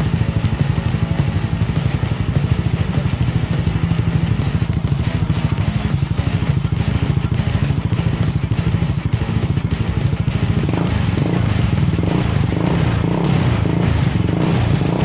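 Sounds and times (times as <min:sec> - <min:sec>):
scooter engine idling and revving: 0:00.0 - 0:15.0.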